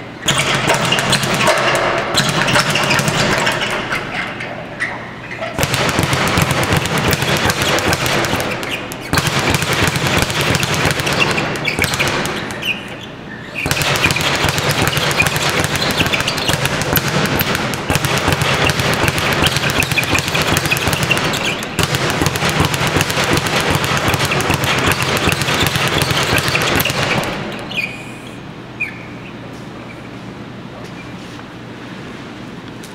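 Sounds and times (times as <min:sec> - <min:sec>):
speed bag punching rattle: 0:00.2 - 0:04.2, 0:05.5 - 0:13.0, 0:13.6 - 0:27.8.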